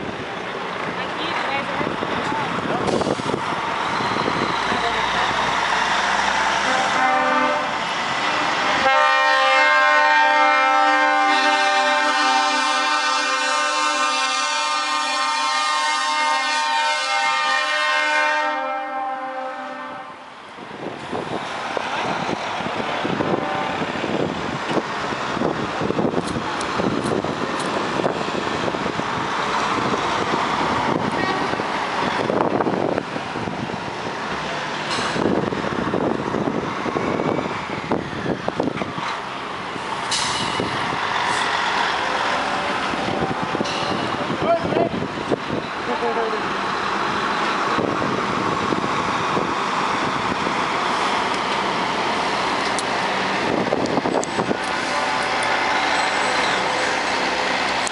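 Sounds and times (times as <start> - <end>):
diesel trucks pulling away: 0.0 - 17.4, 20.2 - 57.9
truck air horn chord: 6.7 - 20.2.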